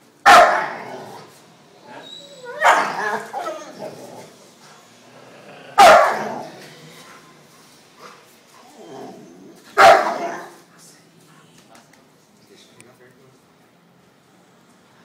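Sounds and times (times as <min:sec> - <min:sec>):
large dog barking: 0:00.2 - 0:01.3, 0:02.5 - 0:04.3, 0:05.7 - 0:06.6, 0:09.0 - 0:10.6.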